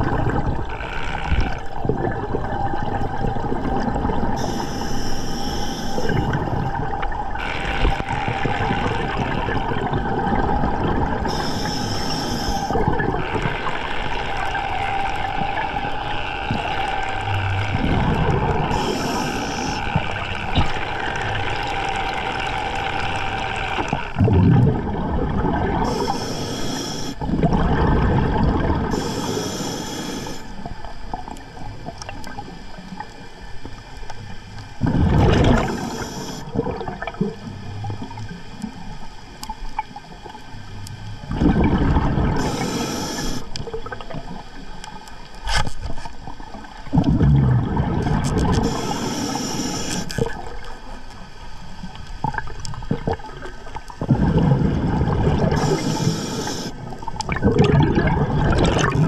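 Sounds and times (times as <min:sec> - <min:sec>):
exhaled bubbles gurgling underwater: 0:00.0 - 0:59.0
regulator inhalation hiss: 0:04.4 - 0:06.5, 0:11.2 - 0:12.8, 0:18.6 - 0:24.1, 0:25.8 - 0:27.2, 0:28.9 - 0:30.6, 0:35.5 - 0:36.5, 0:42.3 - 0:43.6, 0:48.6 - 0:50.3, 0:55.5 - 0:56.9.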